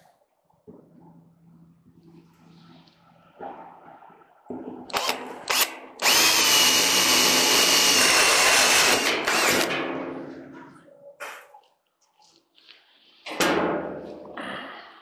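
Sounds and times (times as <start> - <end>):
cordless drill drilling steel: 4.9 - 9.7.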